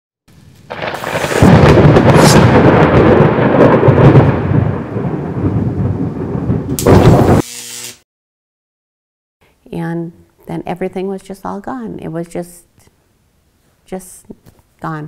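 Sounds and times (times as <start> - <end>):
rain falling: 0.4 - 7.4
thunder rumbling: 0.6 - 7.4.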